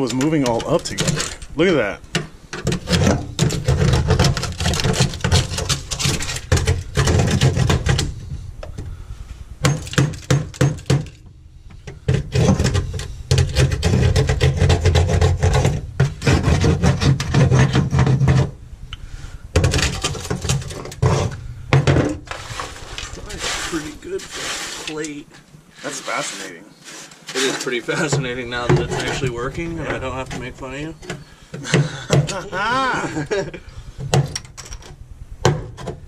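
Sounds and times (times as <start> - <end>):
hand tool chipping on metal floor: 2.2 - 8.1, 9.6 - 11.2, 12.1 - 18.5.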